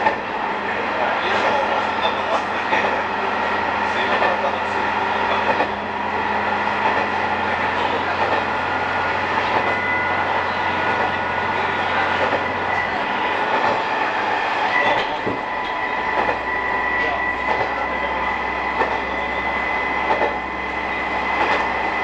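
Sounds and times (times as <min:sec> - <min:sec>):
railcar drone and whine: 0:00.0 - 0:22.0.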